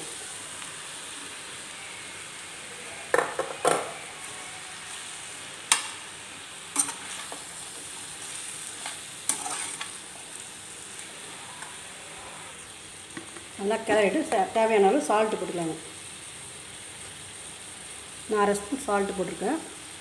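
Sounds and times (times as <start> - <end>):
vegetables sizzling in oil: 0.0 - 20.0
spatula scraping a pan: 8.3 - 10.0.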